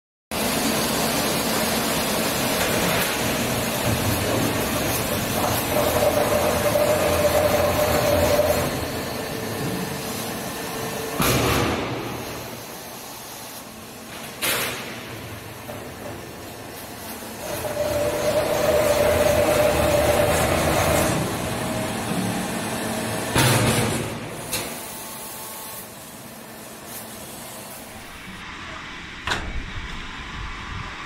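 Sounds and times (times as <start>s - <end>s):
lathe machine running: 0.4s - 11.2s, 16.3s - 23.4s.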